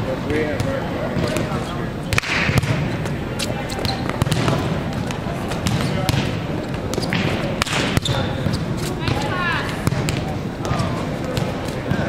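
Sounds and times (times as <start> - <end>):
murmur of many voices: 0.0 - 12.0
volleyball smacks: 2.1 - 2.9, 3.8 - 4.7, 5.5 - 12.0.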